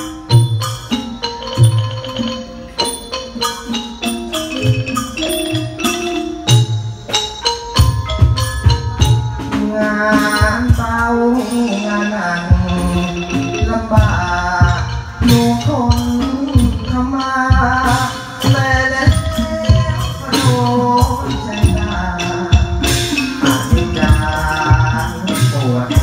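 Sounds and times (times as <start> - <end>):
drum beats: 0.0 - 26.0
wavering melody line: 0.0 - 26.0
xylophone notes: 0.0 - 26.0.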